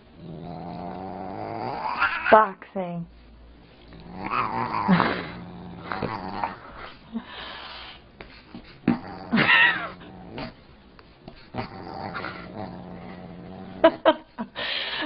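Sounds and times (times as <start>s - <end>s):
dog growling: 0.0s - 2.4s, 3.8s - 7.6s, 8.6s - 14.3s.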